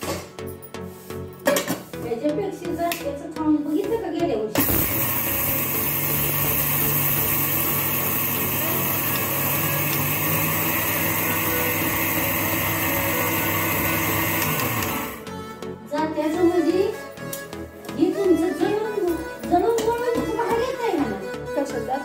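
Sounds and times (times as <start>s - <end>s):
mixer grinder grinding lentils: 4.6s - 15.3s.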